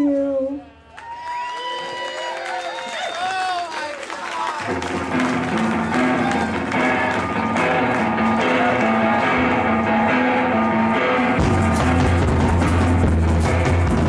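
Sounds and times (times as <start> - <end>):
bass guitar: 4.6 - 14.0
electric guitar riff: 4.6 - 14.0
drums and cymbals: 11.3 - 14.0.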